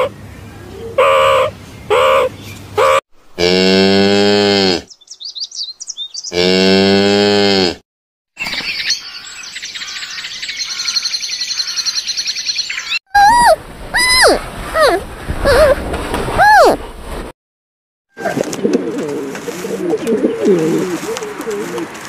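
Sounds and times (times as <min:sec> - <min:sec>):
cow mooing: 0:03.4 - 0:04.8, 0:06.3 - 0:07.8.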